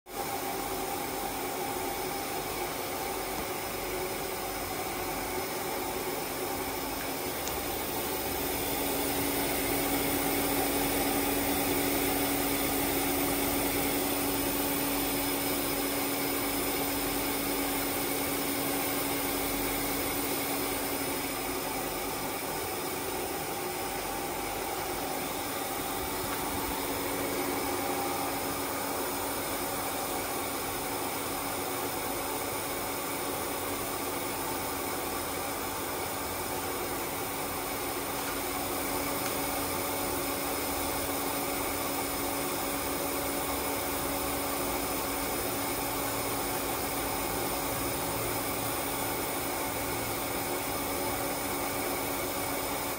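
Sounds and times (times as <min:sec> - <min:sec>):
humidifier motor hum: 0:00.1 - 0:52.9.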